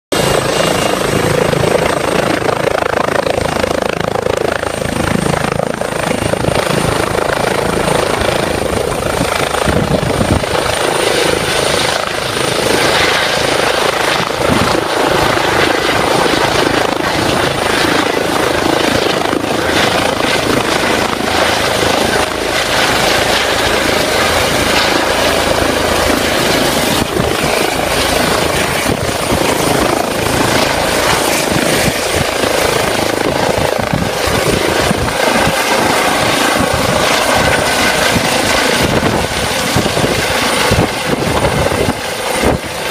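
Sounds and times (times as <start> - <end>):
helicopter rotor and turbine: 0.1 - 42.9
high turbine whine: 0.2 - 42.9.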